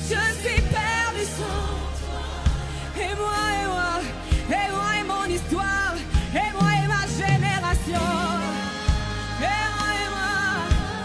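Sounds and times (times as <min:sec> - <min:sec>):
band with steady bass: 0:00.0 - 0:11.0
person singing wordless melody: 0:00.0 - 0:11.0.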